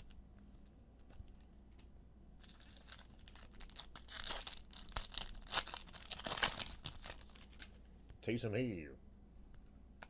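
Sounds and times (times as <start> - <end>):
wrapper crinkling and tearing: 2.4 - 7.8.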